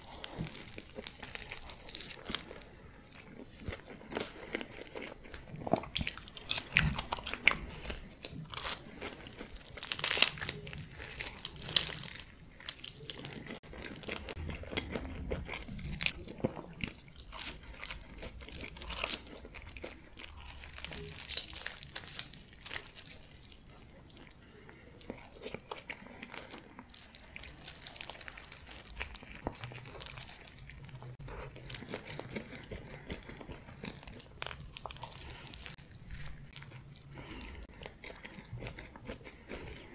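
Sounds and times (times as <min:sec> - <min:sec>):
biting and chewing: 0:00.0 - 0:39.9.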